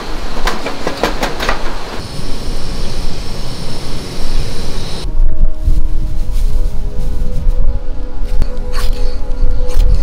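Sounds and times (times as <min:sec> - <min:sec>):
gas burner hissing: 0:00.0 - 0:05.1.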